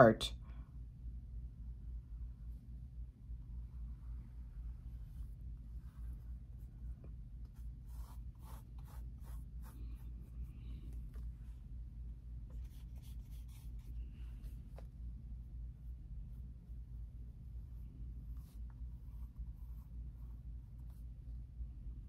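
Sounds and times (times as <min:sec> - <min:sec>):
steady low hum: 0:00.0 - 0:22.0
paintbrush brushing on wood: 0:03.7 - 0:11.5, 0:12.5 - 0:14.9.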